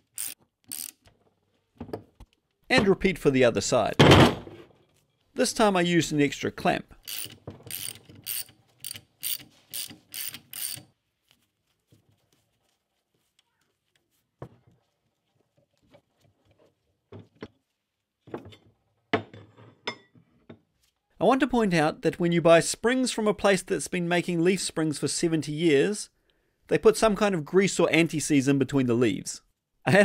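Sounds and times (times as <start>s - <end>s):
ratchet wrench clicking: 0.0s - 1.0s, 7.0s - 10.9s.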